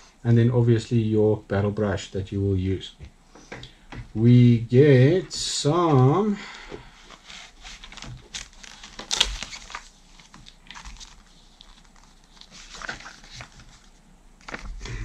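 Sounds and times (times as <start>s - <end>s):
paper booklets rustling: 5.3s - 15.0s.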